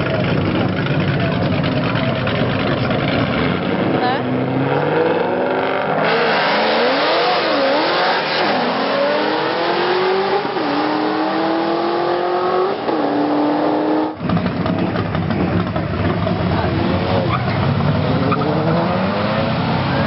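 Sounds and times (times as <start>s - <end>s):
rough engine rumble: 0.0s - 4.7s, 14.2s - 18.8s
drag cars accelerating: 0.0s - 20.0s.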